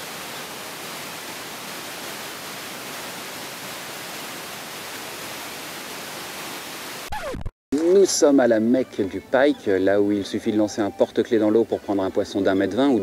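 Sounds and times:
whitewater rushing over rocks: 0:00.0 - 0:07.0.

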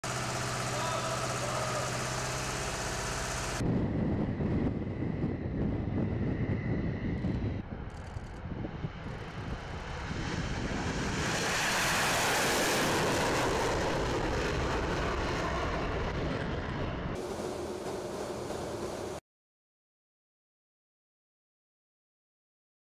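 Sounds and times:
machine hum: 0:00.0 - 0:03.8, 0:17.2 - 0:19.2
fighter jet passing: 0:00.1 - 0:19.2.

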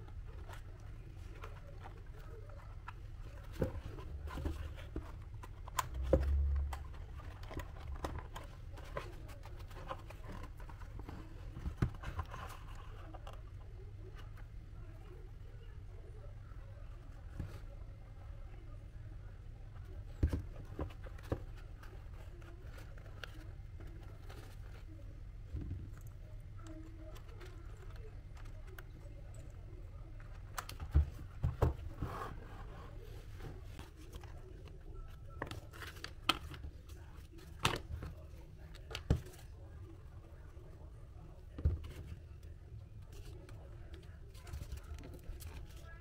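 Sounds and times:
cardboard being handled: 0:00.1 - 0:13.4.

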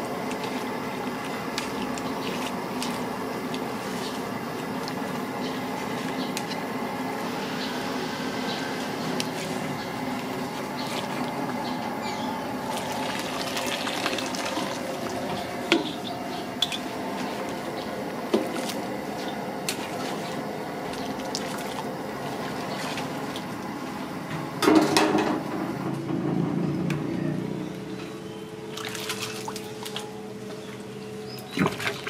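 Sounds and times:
water sloshing and running off: 0:00.0 - 0:06.5, 0:09.2 - 0:11.6, 0:12.6 - 0:24.0, 0:28.7 - 0:30.9, 0:31.5 - 0:32.0
water bubbling in a pot: 0:12.4 - 0:23.9
clatter and splash: 0:28.7 - 0:30.1.

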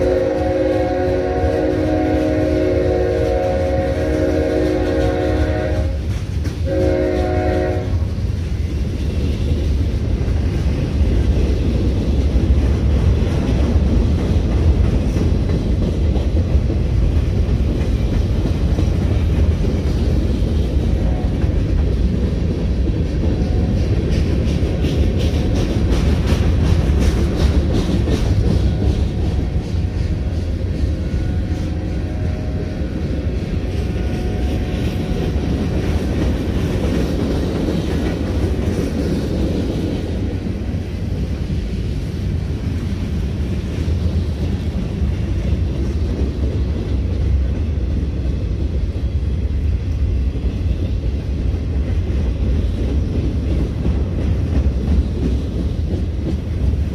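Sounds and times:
train horn: 0:00.0 - 0:08.2, 0:20.9 - 0:21.4, 0:28.4 - 0:35.8.

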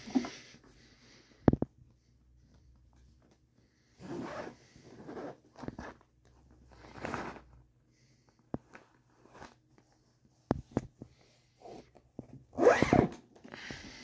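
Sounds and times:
zipper unzipping: 0:04.0 - 0:06.0, 0:12.6 - 0:13.2.

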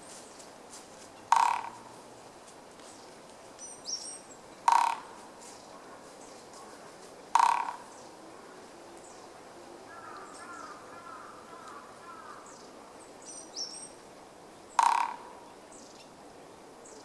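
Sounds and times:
woodpecker drumming on tree trunk: 0:01.2 - 0:02.0, 0:04.6 - 0:05.3, 0:07.3 - 0:07.9, 0:14.8 - 0:15.4
faint bird calls: 0:01.3 - 0:02.0, 0:03.6 - 0:14.0, 0:14.7 - 0:16.1.

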